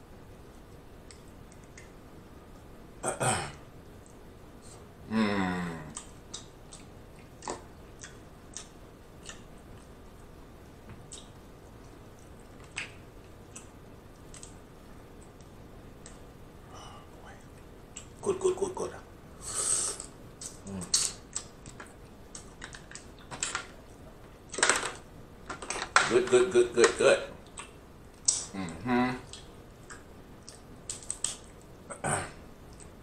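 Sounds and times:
wet mouth clicks and smacks: 27.4 - 28.5
short vocal sounds: 28.3 - 29.4.

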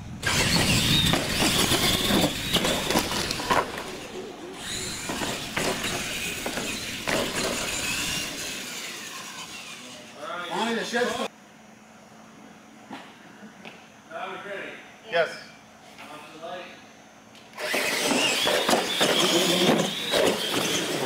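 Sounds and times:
electric motors and gears whining: 0.0 - 11.3, 17.4 - 21.0
tyres rumbling on concrete: 0.2 - 9.5, 17.7 - 21.0
toy trucks clacking on ramps: 0.2 - 9.9, 17.6 - 21.0.

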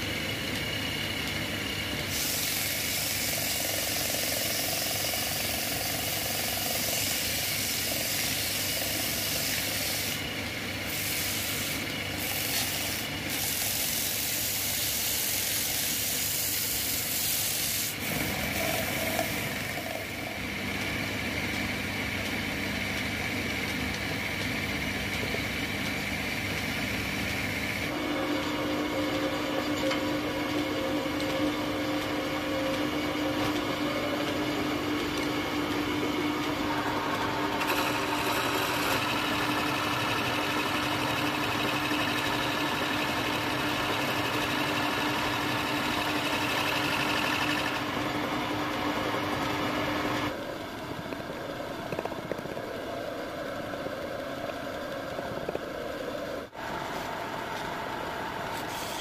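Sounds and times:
wood lathe humming: 0.0 - 50.5
sandpaper rubbing spinning wood: 2.0 - 20.2, 37.6 - 47.9.

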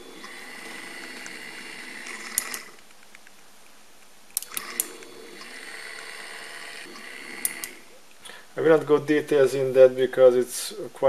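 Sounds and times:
electric motor humming and whining: 0.0 - 2.8, 4.4 - 8.0
sharp clicks: 2.0 - 5.6, 6.8 - 8.2.

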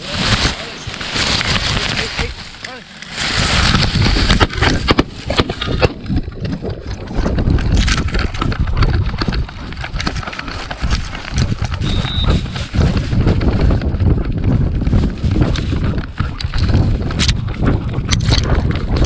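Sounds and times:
dry grass scraping and rustling: 0.0 - 8.6, 9.6 - 13.8
wind buffeting microphone: 0.0 - 19.0.

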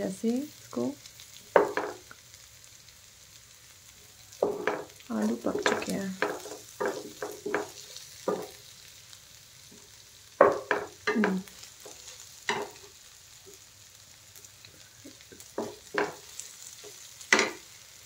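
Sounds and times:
faint frying sizzle: 0.0 - 18.0
wooden spatula scraping pan: 4.4 - 8.6.

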